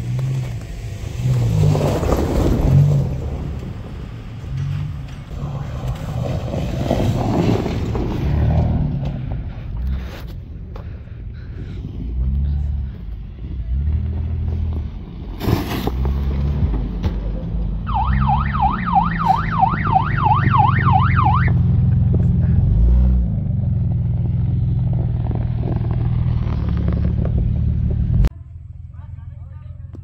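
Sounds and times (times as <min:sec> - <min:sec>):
vehicle engine revving: 0:00.0 - 0:30.0
siren-like whooping tone: 0:17.9 - 0:21.6.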